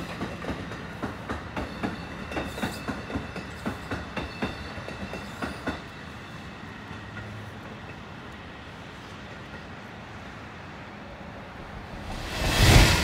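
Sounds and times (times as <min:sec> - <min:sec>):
train wheels clacking over rail joints: 0:00.0 - 0:05.9.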